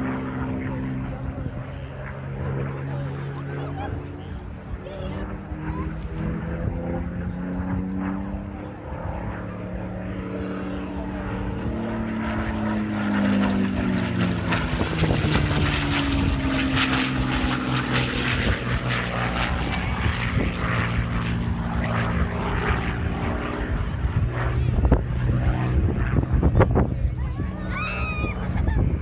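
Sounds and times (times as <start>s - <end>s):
propeller plane engine passing overhead: 0.0s - 29.0s.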